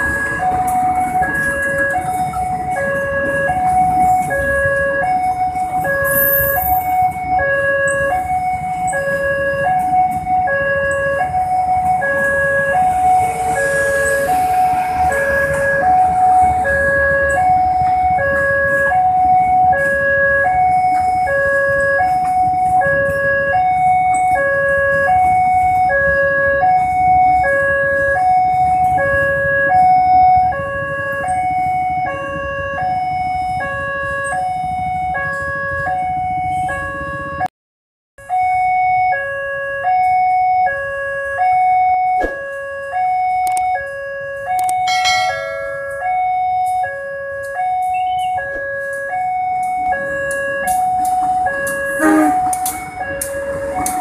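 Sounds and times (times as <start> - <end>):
train coaches rumbling: 0.0 - 10.5, 44.8 - 46.8, 49.8 - 54.0
level crossing two-tone alarm: 0.0 - 37.5, 38.2 - 54.0.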